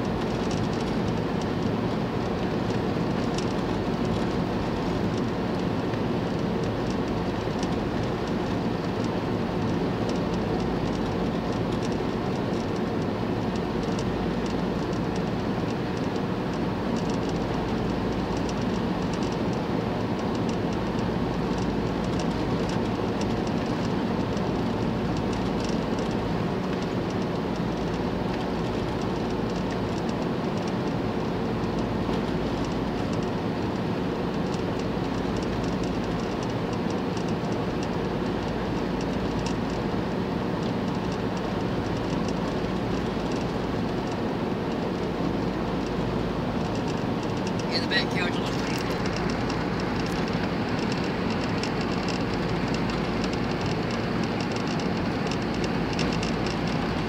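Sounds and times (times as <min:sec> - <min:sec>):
tyre road noise: 0:00.0 - 0:57.0
van engine cruising: 0:00.0 - 0:57.0.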